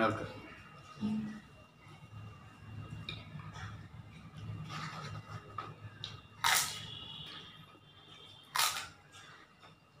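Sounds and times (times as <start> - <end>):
papadam snapping crackle: 6.0 - 6.8, 8.5 - 9.0.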